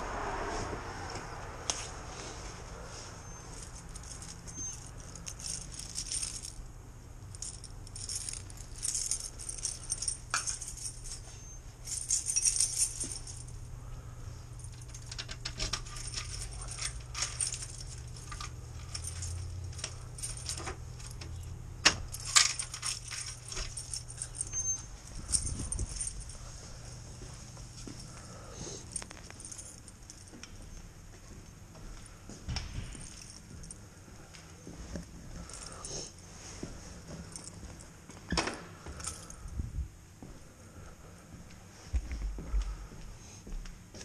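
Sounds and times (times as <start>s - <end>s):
steady low hum: 0.0s - 44.0s
keys jangling: 3.2s - 30.8s, 31.5s - 34.7s, 35.3s - 39.5s.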